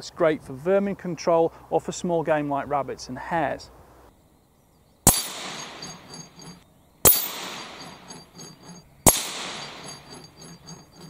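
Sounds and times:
rifle shots: 5.1s - 6.2s, 7.0s - 8.0s, 9.0s - 10.0s
plate rattling on hanger: 5.1s - 11.0s
steel plate clanging: 5.1s - 11.0s.

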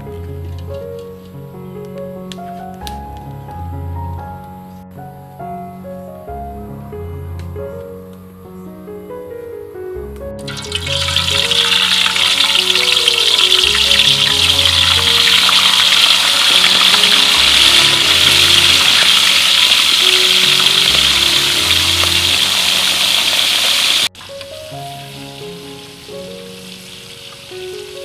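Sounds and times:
soft background music: 0.0s - 28.0s
fish sizzling in hot oil: 10.5s - 24.1s, 25.8s - 28.0s.

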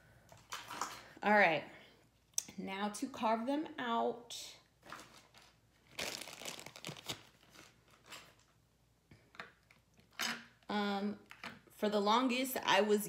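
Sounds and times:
crinkling rustle: 4.8s - 8.6s.

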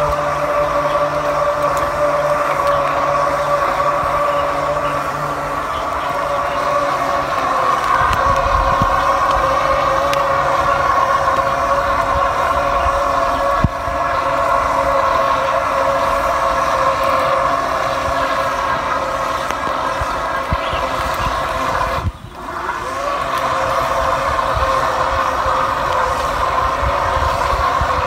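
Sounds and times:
electric motor whining: 0.0s - 28.0s
wind on microphone: 0.0s - 28.0s.

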